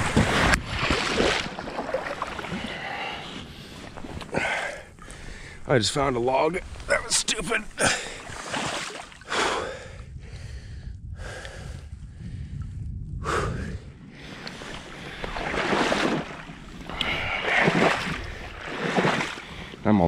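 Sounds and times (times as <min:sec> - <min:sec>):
water sloshing: 0:00.0 - 0:09.3, 0:14.2 - 0:19.8
man breathing hard: 0:02.5 - 0:05.6, 0:09.2 - 0:15.4.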